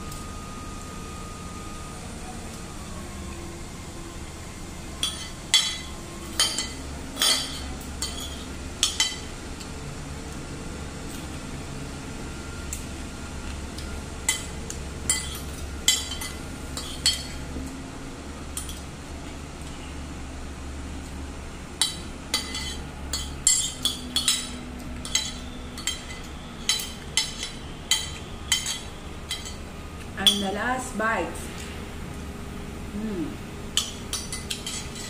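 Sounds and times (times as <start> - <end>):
low steady hum: 0.0 - 35.0
cutlery clinking on a ceramic plate: 5.0 - 9.3, 21.8 - 29.6, 33.8 - 35.0.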